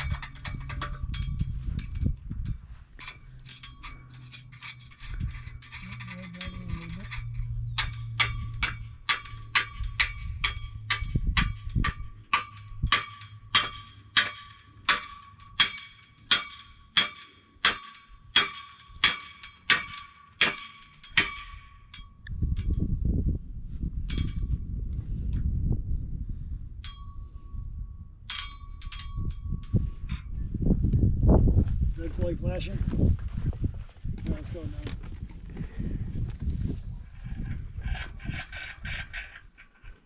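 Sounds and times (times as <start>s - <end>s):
low hum: 0.0s - 32.1s
hammer striking metal: 7.8s - 22.1s.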